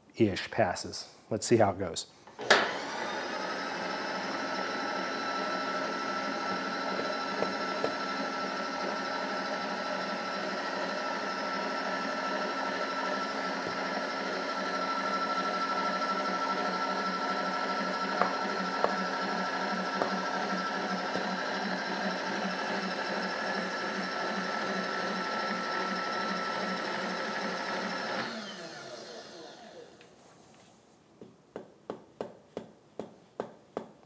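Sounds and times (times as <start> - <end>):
power feed motor whirring: 2.4 - 30.0.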